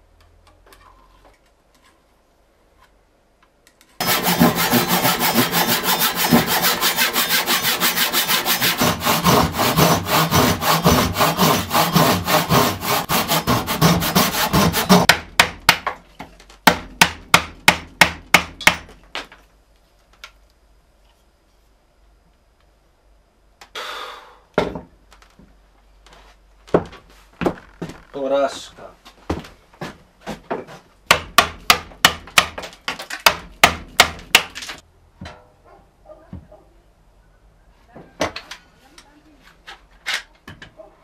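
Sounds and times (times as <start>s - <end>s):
hand saw cutting wood: 4.0s - 15.1s.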